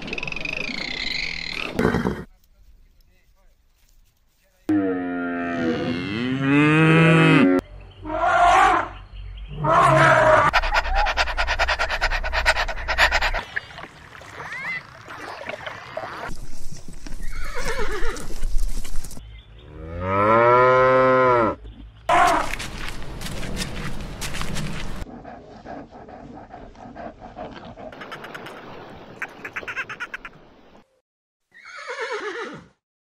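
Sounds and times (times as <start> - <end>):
cows mooing: 4.7 - 7.6.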